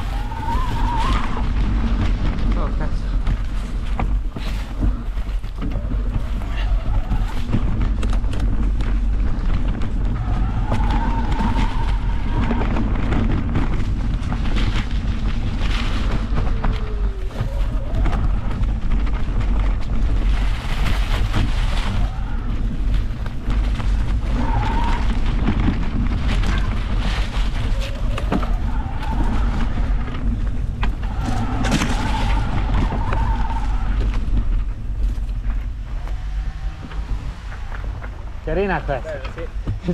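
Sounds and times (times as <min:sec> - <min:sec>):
bike rattling and knocking: 0:00.0 - 0:39.9
bike tyres rumbling on dirt trail: 0:00.0 - 0:39.9
wind on camera: 0:00.0 - 0:39.9.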